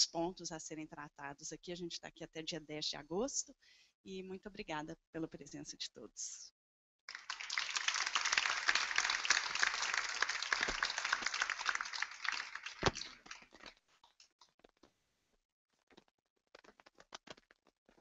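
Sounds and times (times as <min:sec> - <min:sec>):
audience applauding: 0:07.1 - 0:13.8.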